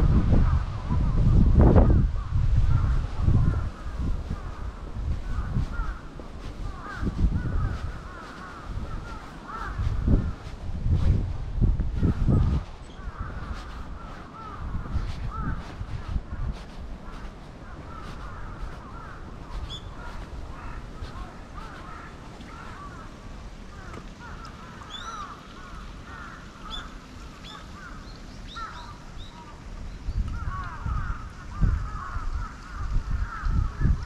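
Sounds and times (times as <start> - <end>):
birds calling: 2.7 - 11.0, 12.0 - 34.0
loud low thumps and rumble: 8.8 - 13.5.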